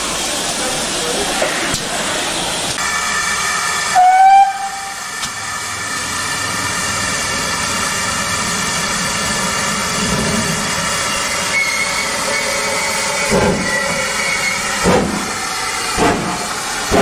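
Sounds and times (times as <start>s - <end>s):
rushing roar of steam train: 0.0s - 17.0s
steam locomotive whistle: 3.8s - 5.2s, 11.3s - 14.7s.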